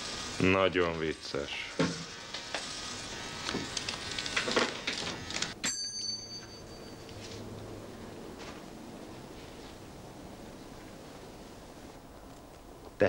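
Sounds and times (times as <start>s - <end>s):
desk call bell ringing: 5.6s - 7.6s.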